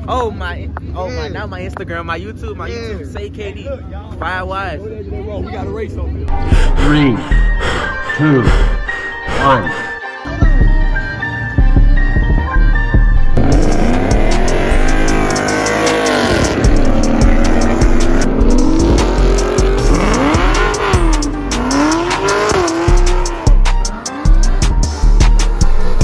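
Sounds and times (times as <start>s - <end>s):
music: 6.2s - 26.0s
car engine revving hard: 13.4s - 26.0s.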